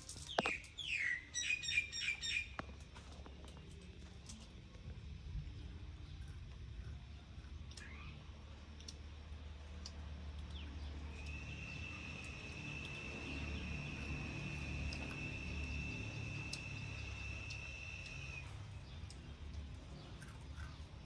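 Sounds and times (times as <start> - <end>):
insect high trill: 10.9 - 18.6
scattered clicks: 14.0 - 20.9.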